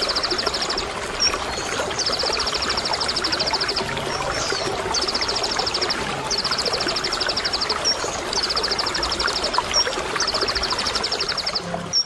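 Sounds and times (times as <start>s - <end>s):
running water: 0.0s - 12.0s.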